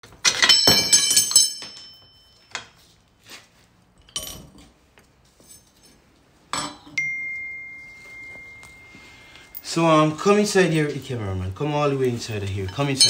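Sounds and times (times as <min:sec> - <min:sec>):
metal tools clinking and clattering: 0:00.1 - 0:02.8, 0:04.0 - 0:04.7, 0:12.0 - 0:13.0.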